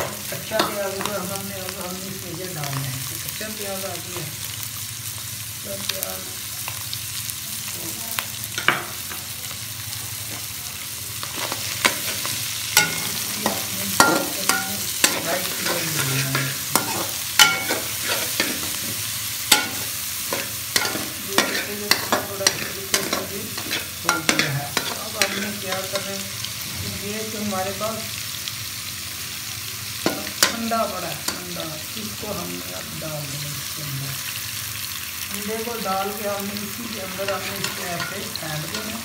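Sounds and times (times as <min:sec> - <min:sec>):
food sizzling in hot oil: 0:00.0 - 0:39.0
metal spoon scraping and clacking: 0:12.8 - 0:18.8, 0:19.5 - 0:26.0.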